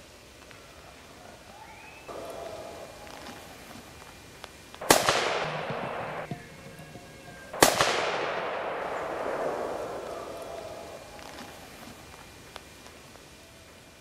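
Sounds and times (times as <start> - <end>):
rifle shots with rolling echo: 4.8 - 12.0.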